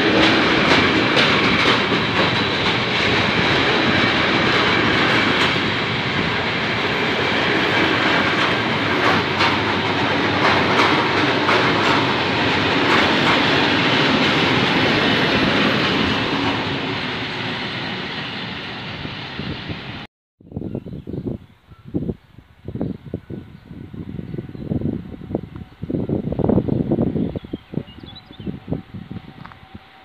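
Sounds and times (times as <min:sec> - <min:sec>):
wheels clicking over rail joints: 0:00.0 - 0:06.3, 0:07.6 - 0:16.6
freight train rolling past: 0:00.0 - 0:20.1, 0:21.2 - 0:30.0.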